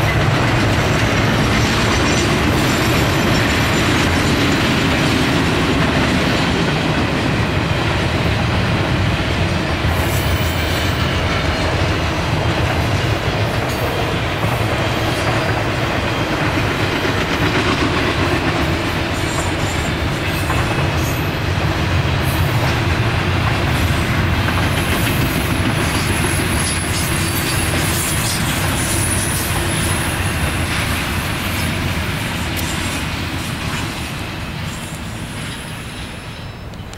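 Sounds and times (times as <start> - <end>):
wheels clacking over rail joints: 0.0 - 36.0
freight train rumbling: 0.0 - 36.9
high wheel squeal: 34.6 - 36.9.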